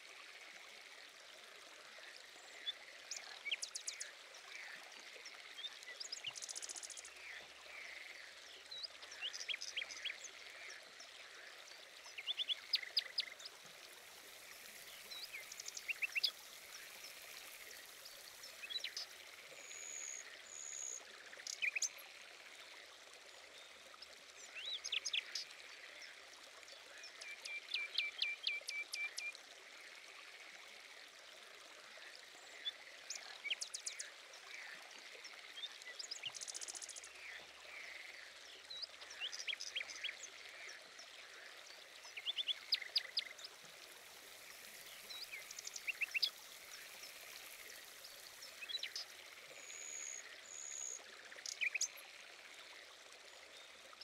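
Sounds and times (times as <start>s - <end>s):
quiet hiss of trickling water: 0.0s - 54.0s
small birds chirping and trilling: 2.5s - 22.0s, 32.5s - 52.1s.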